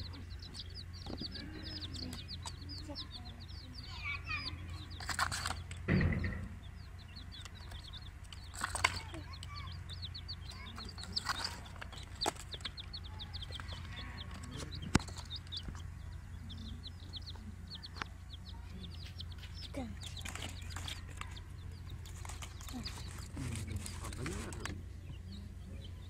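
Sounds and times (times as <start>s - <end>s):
chicks peeping: 0.0s - 26.0s
steady low hum: 0.0s - 26.0s
sharp knocks: 5.7s - 6.7s.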